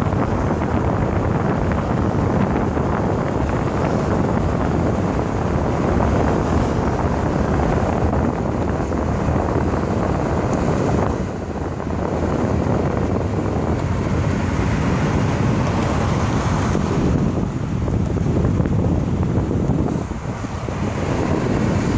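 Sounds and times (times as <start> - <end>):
highway traffic rumble: 0.0 - 21.9
wind on microphone: 0.0 - 21.9.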